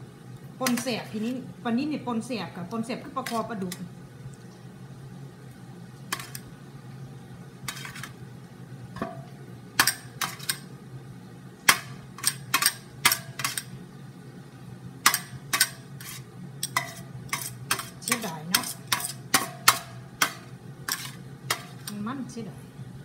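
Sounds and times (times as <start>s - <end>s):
metal spoon scraping a steel tray: 6.1s - 6.4s, 7.7s - 8.2s, 9.9s - 10.6s, 13.4s - 13.7s, 15.1s - 22.0s.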